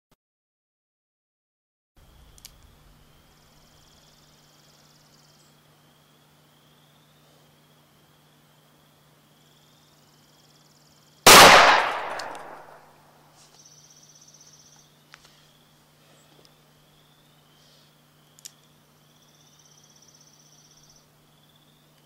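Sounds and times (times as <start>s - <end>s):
crickets chirring: 2.0s - 15.9s, 16.5s - 22.0s
revolver gunshot with echo: 11.3s - 12.9s.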